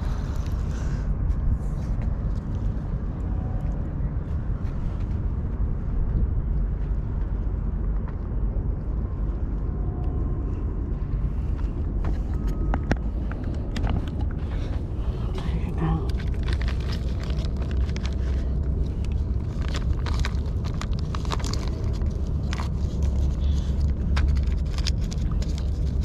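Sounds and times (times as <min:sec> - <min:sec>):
low outdoor rumble: 0:00.0 - 0:26.0.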